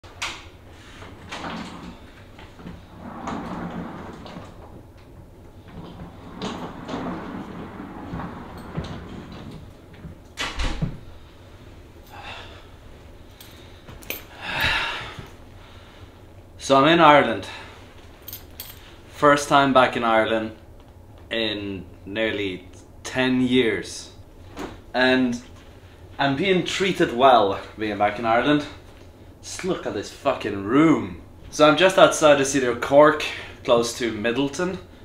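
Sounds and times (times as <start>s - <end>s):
wheeled suitcase rolling: 1.2s - 10.2s.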